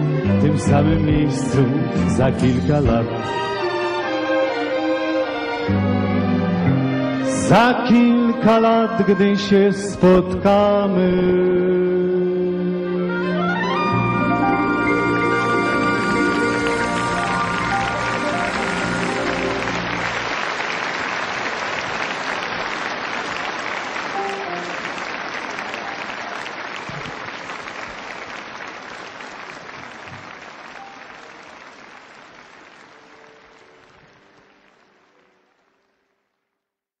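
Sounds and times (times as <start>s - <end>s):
orchestra closing chord: 13.2s - 20.5s, 24.1s - 25.0s
audience applauding: 14.3s - 36.0s.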